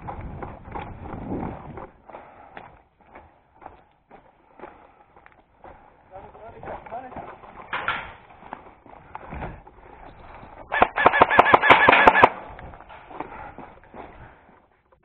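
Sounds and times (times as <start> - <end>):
airsoft rifle automatic fire: 10.7 - 12.4.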